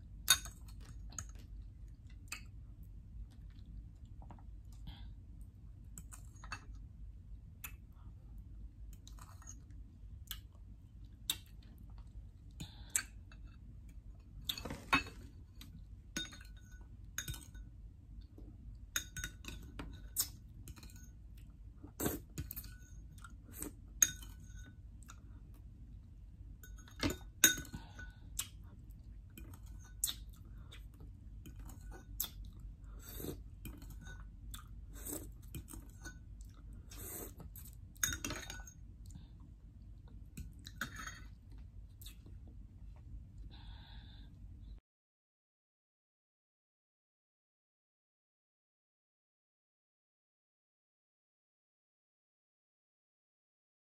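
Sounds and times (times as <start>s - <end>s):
metal spoon clinking on glass bowl: 16.2s - 17.7s.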